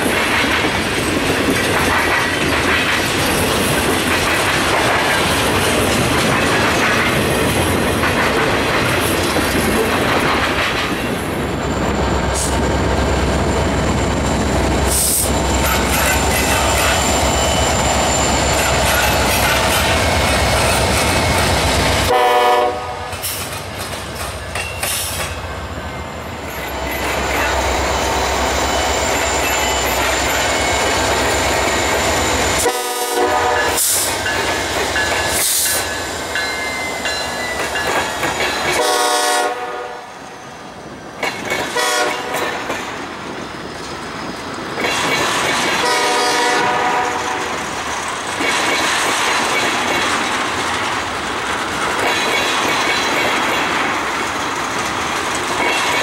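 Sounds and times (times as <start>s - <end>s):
train wheels clacking over rail joints: 0.0s - 11.2s, 14.9s - 22.1s, 23.0s - 25.4s, 33.4s - 39.3s, 41.2s - 56.0s
locomotive horn blasts: 22.1s - 23.2s, 32.6s - 33.8s, 38.8s - 40.1s, 41.8s - 42.3s, 45.8s - 47.5s.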